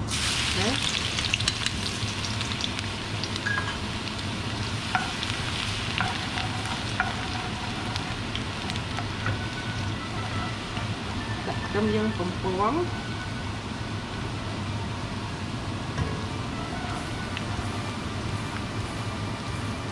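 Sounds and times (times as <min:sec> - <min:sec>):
food sizzling in hot oil: 0:00.0 - 0:12.9
wooden spatula stirring: 0:04.9 - 0:11.9.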